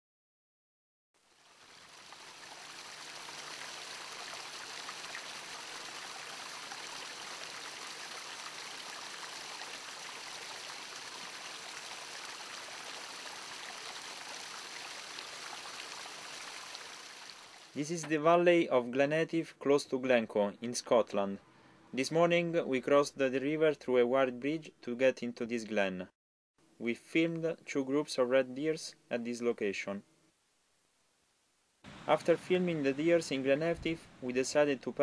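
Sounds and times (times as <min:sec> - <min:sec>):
stream splashing over rocks: 0:01.3 - 0:17.8.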